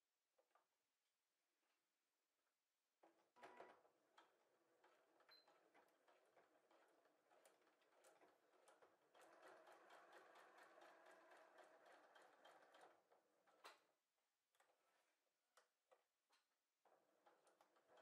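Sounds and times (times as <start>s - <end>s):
sewing machine stitching: 3.4s - 13.7s.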